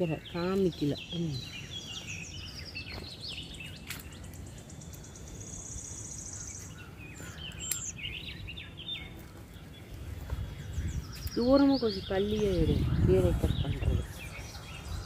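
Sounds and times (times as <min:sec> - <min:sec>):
high bird trill: 0:00.0 - 0:15.0
small birds chirping: 0:00.0 - 0:15.0
sharp clicks: 0:07.5 - 0:07.9.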